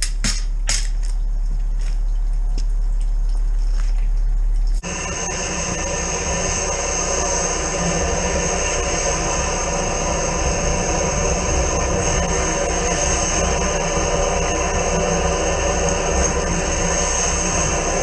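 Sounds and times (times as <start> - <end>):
drain-jetting machine drone: 0.0 - 18.0
steady low hum: 0.0 - 18.0.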